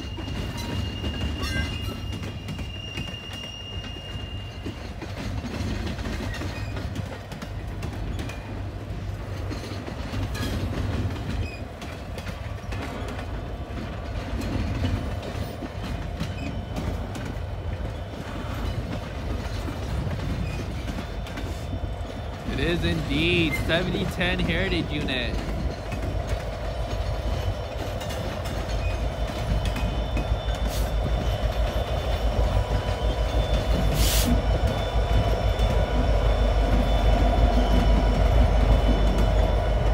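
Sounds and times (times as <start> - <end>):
clatter at rail joints: 0.0 - 39.9
wheels rumbling on rail: 0.0 - 39.9
high steady squeal: 26.4 - 39.9.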